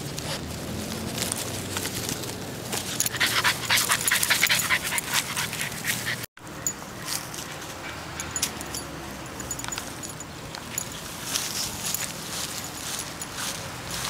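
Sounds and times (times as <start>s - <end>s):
quiet outdoor sound: 0.0s - 14.0s
puppy panting: 2.9s - 6.3s.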